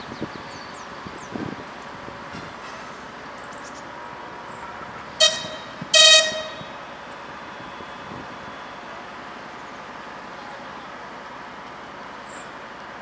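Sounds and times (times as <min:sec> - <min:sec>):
train horn toots: 0:05.2 - 0:09.1.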